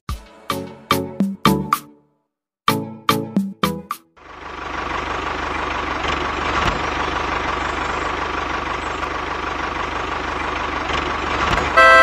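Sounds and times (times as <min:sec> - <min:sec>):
tractor engine idling: 0:04.2 - 0:12.0.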